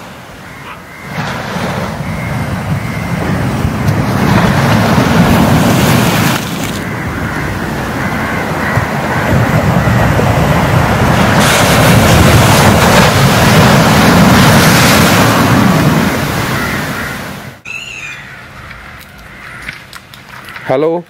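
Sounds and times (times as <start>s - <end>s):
waves breaking on rocks: 1.0s - 17.4s.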